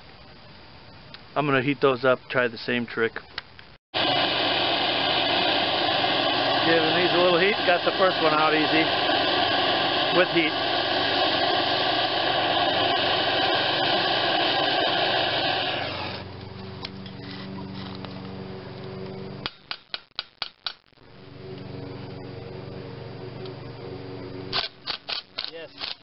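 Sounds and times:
steady hum: 0.0s - 26.0s
gas torch flame hissing: 4.0s - 16.4s.

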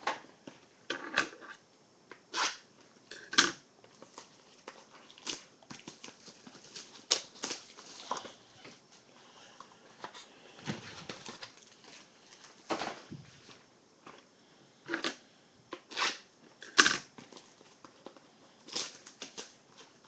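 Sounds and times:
cardboard and wrapper crinkling: 3.9s - 14.2s, 17.2s - 20.0s.

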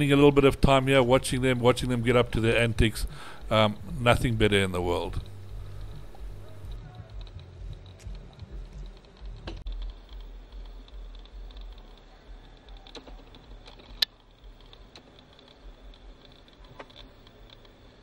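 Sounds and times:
low rumble: 1.4s - 11.9s
light clicks and crackles: 4.9s - 18.0s.

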